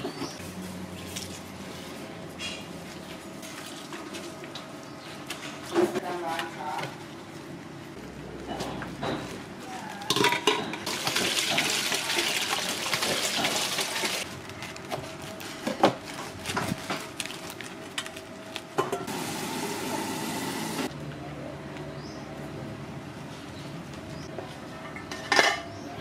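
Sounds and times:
water running: 10.9 - 14.2.

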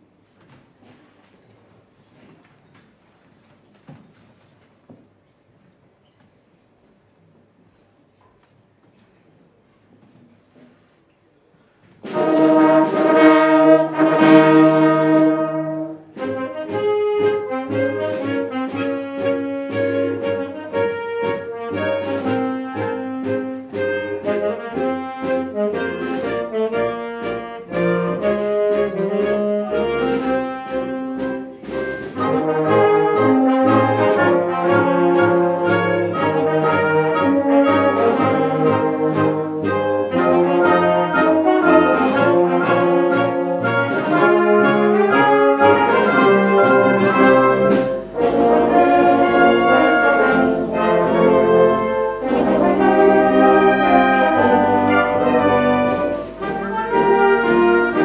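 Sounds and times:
concert band playing: 12.0 - 58.0
percussion beats: 12.0 - 58.0.

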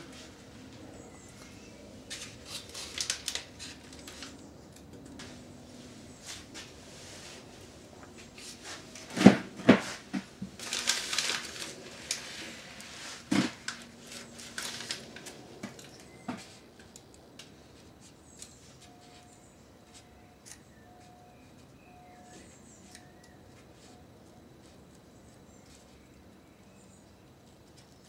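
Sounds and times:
rustling: 6.1 - 15.4.

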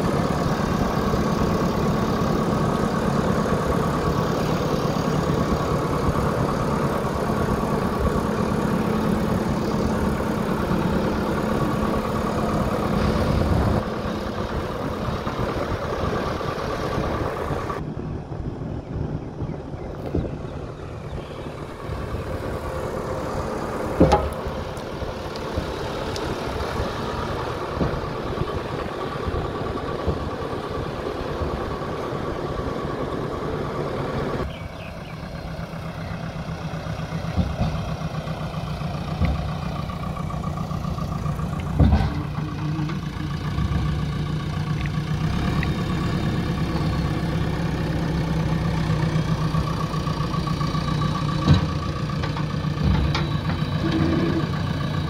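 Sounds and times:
diesel engine running: 0.0 - 55.0
sharp knocks: 24.0 - 24.4.

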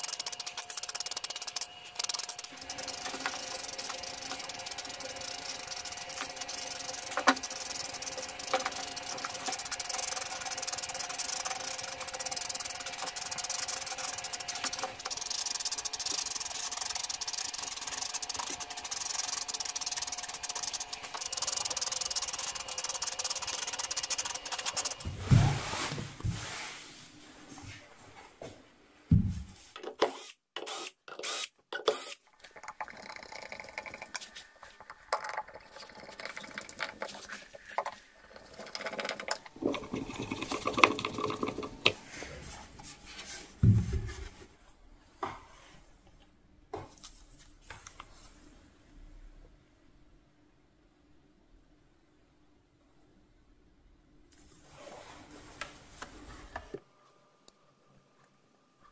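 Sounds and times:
spray paint can hissing: 0.0 - 25.1.

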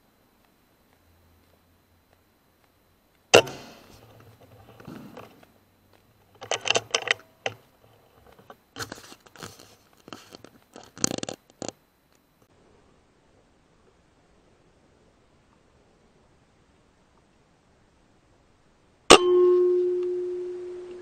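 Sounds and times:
air rifle shot: 3.3 - 3.8.

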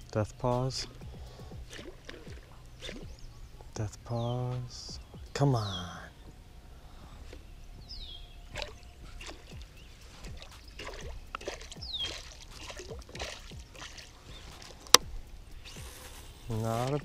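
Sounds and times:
fish splashing at water surface: 1.0 - 3.2, 8.5 - 15.1.

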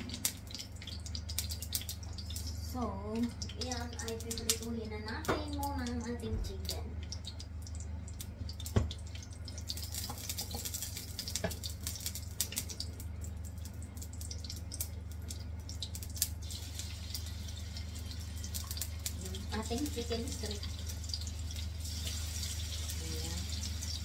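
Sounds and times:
oil sizzling in a frying pan: 0.0 - 24.0
steady low hum: 0.0 - 24.0.

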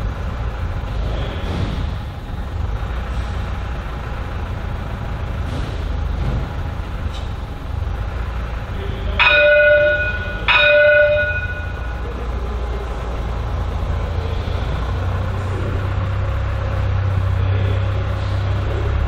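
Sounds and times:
low tram hum: 0.0 - 19.0
tram gong ding: 9.1 - 12.4.

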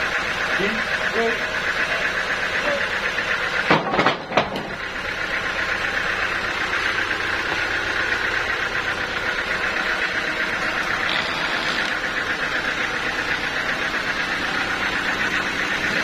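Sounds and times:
sawmill machinery running: 0.0 - 16.0
sharp knocks: 3.6 - 4.8.

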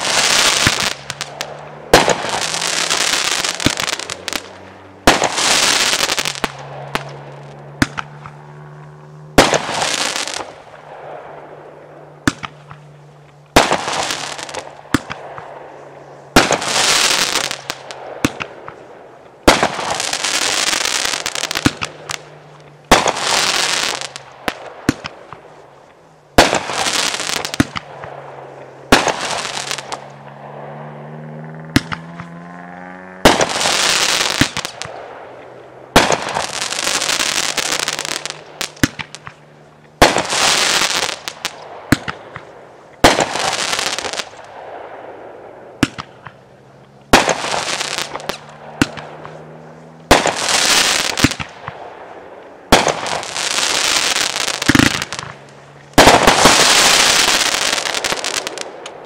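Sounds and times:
fizzing sparks from fireworks: 0.0 - 8.4, 9.3 - 11.2, 12.3 - 30.5, 33.2 - 45.2, 45.8 - 59.0
firework bangs: 0.0 - 59.0
sharp firework cracks: 0.0 - 59.0.

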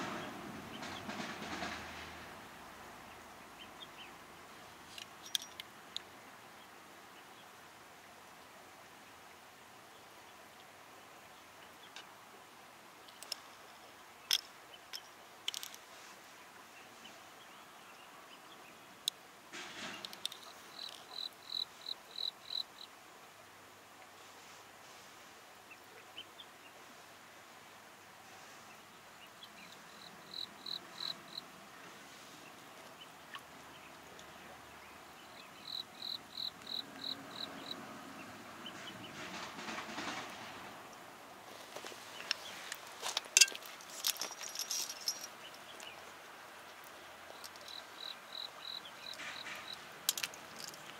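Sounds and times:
steady low hiss: 0.0 - 50.9
insect chirping: 20.1 - 22.9, 29.7 - 31.5, 35.6 - 37.8, 47.3 - 50.9.

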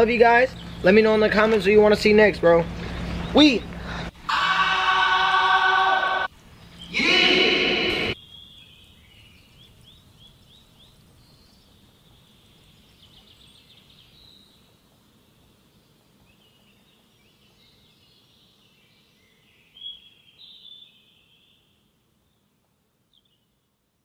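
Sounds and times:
small birds chirping: 0.0 - 4.2, 8.1 - 22.5
background hiss: 3.7 - 24.0.

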